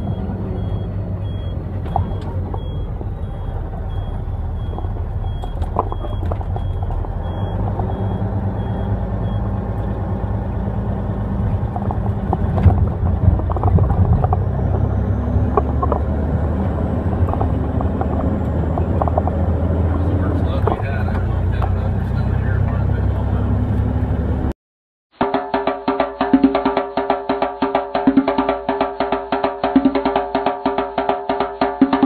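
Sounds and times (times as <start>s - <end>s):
truck bump: 0.0s - 9.9s, 11.3s - 21.8s
truck engine and road noise: 0.0s - 24.6s.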